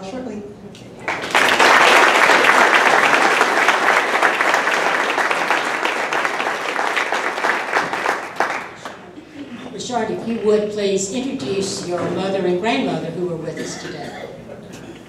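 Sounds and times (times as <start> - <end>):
audience applauding: 1.0 - 9.2.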